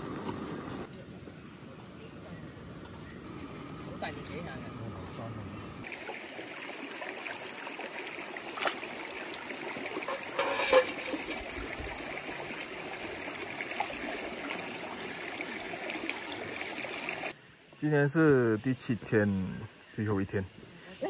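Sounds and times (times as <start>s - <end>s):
water splash: 5.8s - 16.5s
stream trickling over pebbles: 5.8s - 20.8s.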